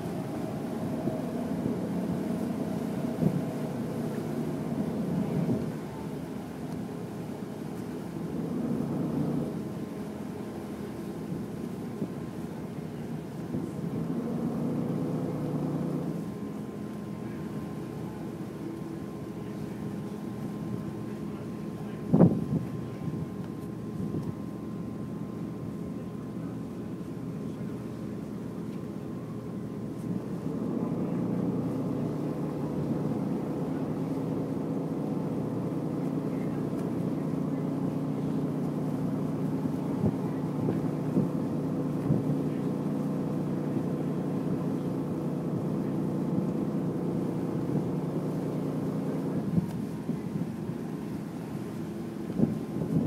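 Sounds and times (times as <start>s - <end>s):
water and air rushing: 0.0s - 12.3s
ferry engines droning: 0.0s - 53.0s.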